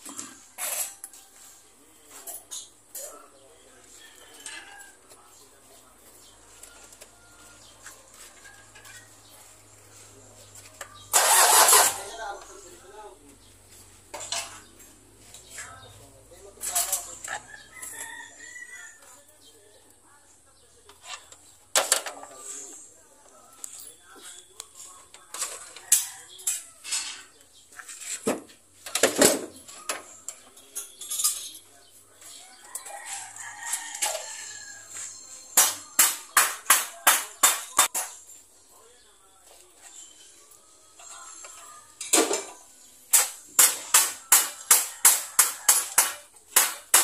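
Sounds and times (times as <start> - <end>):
metal tools clinking on steel: 14.1 - 14.8, 16.6 - 18.2, 28.9 - 31.8.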